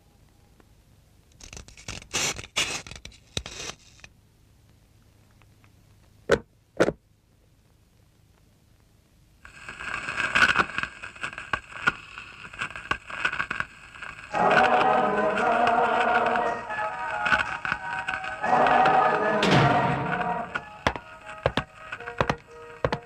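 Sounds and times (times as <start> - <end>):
record player crackling: 0.6 - 6.4, 7.3 - 23.0
music from record: 9.5 - 23.0.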